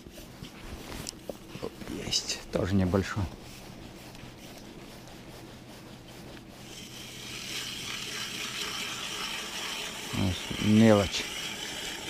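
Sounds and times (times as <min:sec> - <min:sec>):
fishing reel whirring: 0:06.7 - 0:12.0.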